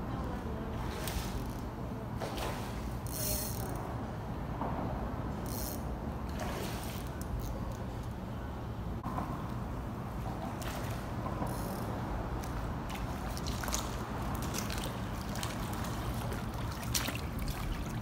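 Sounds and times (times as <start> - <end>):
fish thrashing in water: 12.9 - 18.0.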